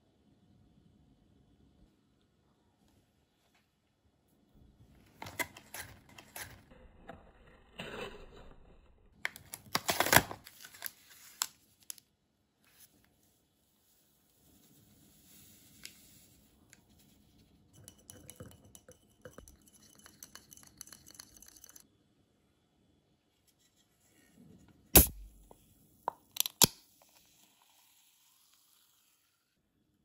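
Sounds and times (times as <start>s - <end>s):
powder pouring into fizzy drink: 19.4s - 21.8s, 27.0s - 29.6s
can ring-pull opening pop: 25.0s - 25.5s.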